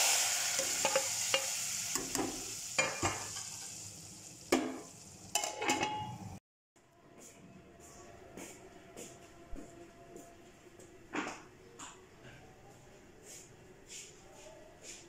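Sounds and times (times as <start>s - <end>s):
hot oil sizzling in a pot: 0.0s - 5.8s
ladle clinking against pot: 4.6s - 6.2s
metal lid clattering: 4.6s - 6.2s.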